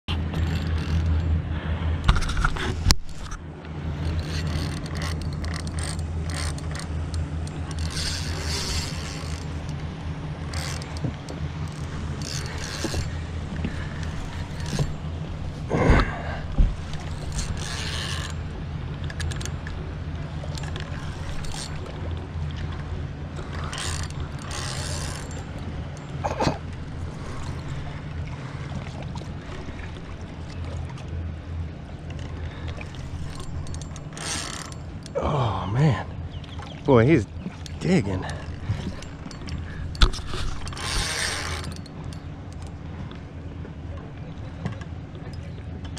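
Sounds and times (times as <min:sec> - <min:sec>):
low motor hum: 0:00.0 - 0:45.9
fishing reel drag clicking: 0:04.0 - 0:11.0, 0:11.6 - 0:15.1, 0:16.8 - 0:18.4, 0:23.4 - 0:25.5, 0:32.6 - 0:35.2, 0:37.6 - 0:42.7.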